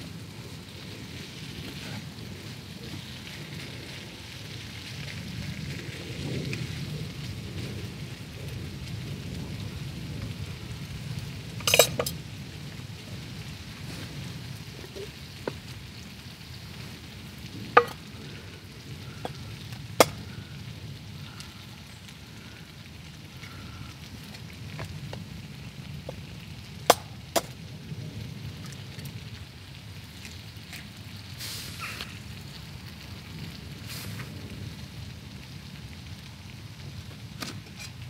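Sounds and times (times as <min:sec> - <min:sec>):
food sizzling in a pan: 0:31.2 - 0:32.9.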